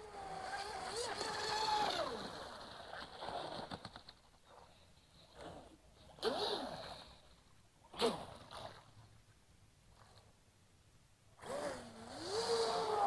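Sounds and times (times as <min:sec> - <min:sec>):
speedboat motor whine: 0:11.4 - 0:13.0.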